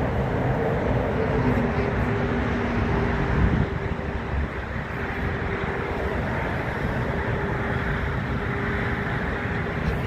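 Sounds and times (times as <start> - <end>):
distant jet engines: 0.0 - 10.0.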